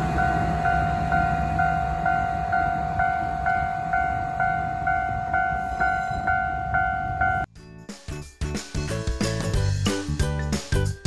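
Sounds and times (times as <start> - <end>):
diesel locomotive rumble: 0.0 - 7.5
level-crossing warning bell ringing: 0.0 - 7.5.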